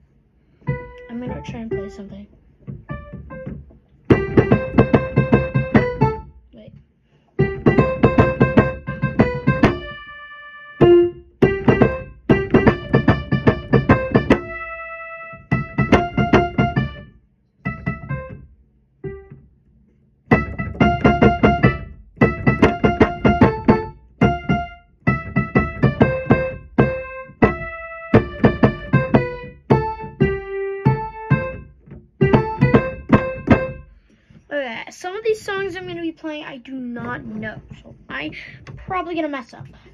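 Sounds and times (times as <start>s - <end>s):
electric keyboard playing: 0.6s - 6.4s, 7.4s - 19.5s, 20.3s - 34.0s.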